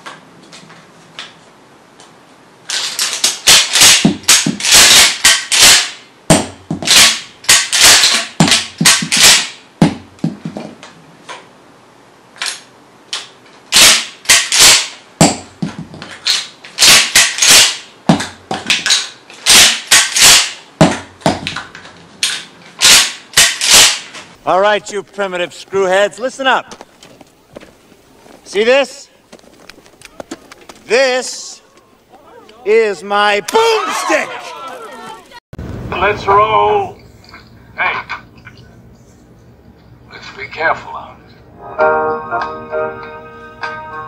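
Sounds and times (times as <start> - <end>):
shotgun pump action clacking: 13.2 - 14.9, 22.2 - 24.1.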